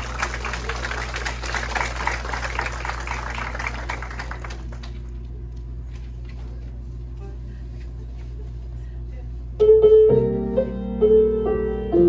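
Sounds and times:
audience applauding: 0:00.0 - 0:05.4
steady low hum: 0:00.0 - 0:12.0.

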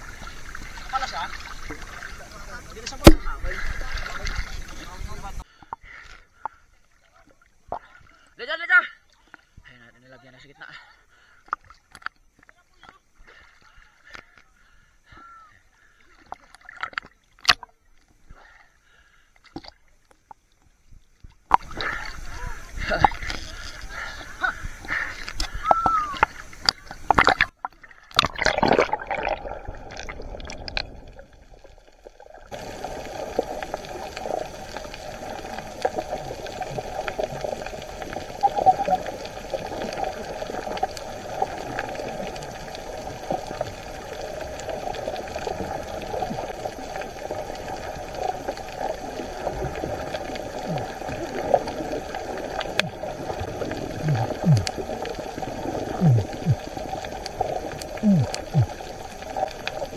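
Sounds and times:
sharp water splashes: 0:00.0 - 0:05.4, 0:24.8 - 0:31.6, 0:32.2 - 0:59.9
water sloshing and gurgling: 0:00.0 - 0:15.1, 0:15.8 - 0:59.9.

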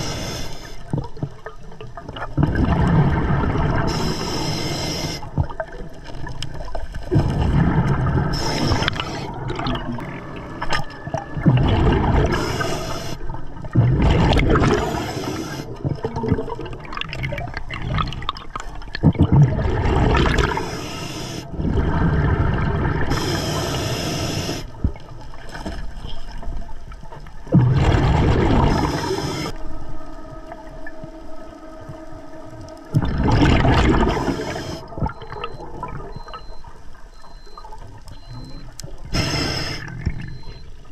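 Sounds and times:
diver inhaling through regulator: 0:00.0 - 0:00.8, 0:03.8 - 0:05.4, 0:08.2 - 0:09.4, 0:12.2 - 0:13.4, 0:14.6 - 0:15.8, 0:20.3 - 0:22.0, 0:23.1 - 0:24.8, 0:28.6 - 0:29.6, 0:33.9 - 0:35.0, 0:39.1 - 0:40.5
gurgling exhaled bubbles: 0:00.0 - 0:26.4, 0:27.4 - 0:29.7, 0:32.8 - 0:36.6.

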